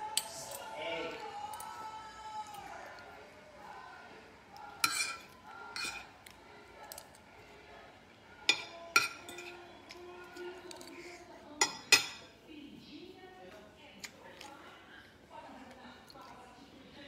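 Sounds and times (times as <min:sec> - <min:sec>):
utensils clinking against bowl: 0:04.8 - 0:06.2, 0:08.4 - 0:12.4.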